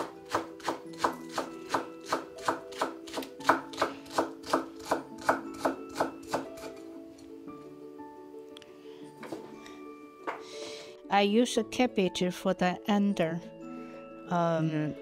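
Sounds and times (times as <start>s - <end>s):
knife chopping on wooden board: 0.0s - 6.7s
soft background music: 0.0s - 15.0s.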